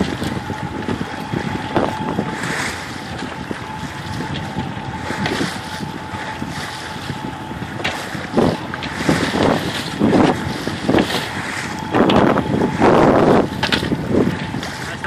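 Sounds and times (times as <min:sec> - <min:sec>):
outboard motor drone: 0:00.0 - 0:15.0
water rushing past boat: 0:00.0 - 0:15.0
wind buffeting microphone: 0:00.0 - 0:15.0.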